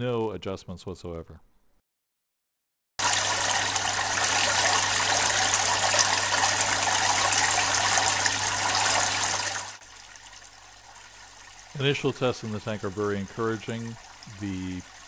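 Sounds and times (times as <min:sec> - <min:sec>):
water splashing into tank: 0:03.0 - 0:15.0.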